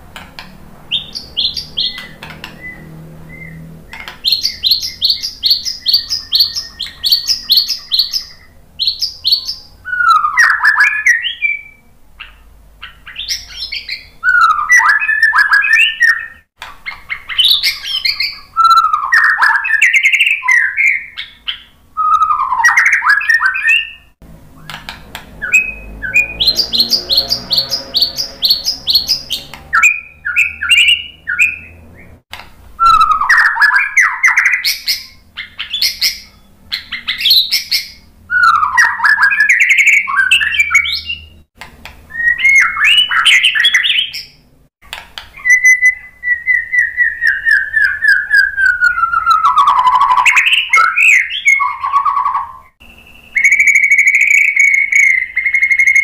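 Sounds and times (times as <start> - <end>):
bird chattering notes: 0.9 - 9.7, 24.6 - 31.6
bird whistled phrases: 0.9 - 24.8, 25.4 - 32.2, 32.8 - 41.4, 42.1 - 44.3, 45.4 - 56.0.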